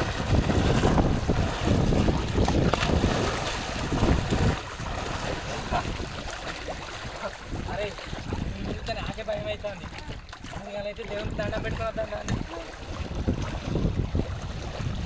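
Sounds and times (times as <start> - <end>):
people splashing in water: 0.0 - 15.0
wind buffeting microphone: 0.0 - 15.0.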